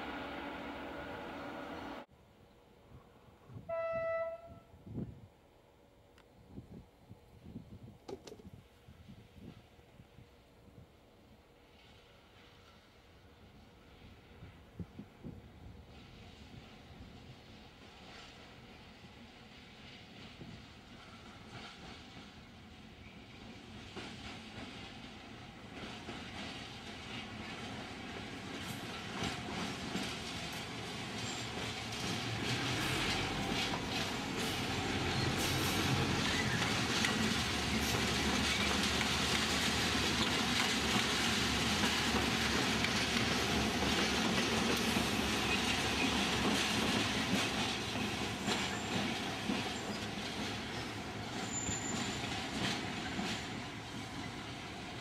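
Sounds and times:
diesel locomotives passing: 0:00.0 - 0:06.2, 0:08.8 - 0:55.0
wheels squealing on track: 0:50.8 - 0:52.4.

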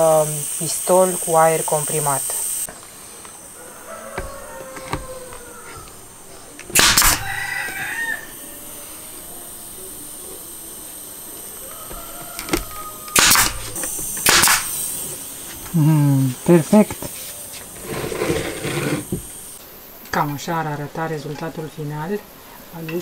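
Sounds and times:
nail gun shots into wood: 0:06.6 - 0:07.3, 0:12.4 - 0:14.9
short burst of air: 0:06.7 - 0:09.7, 0:10.5 - 0:15.8.

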